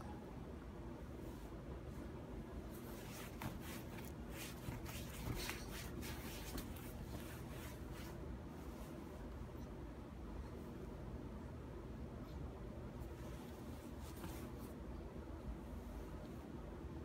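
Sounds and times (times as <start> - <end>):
baby chewing and rustling banana: 2.6 - 8.2.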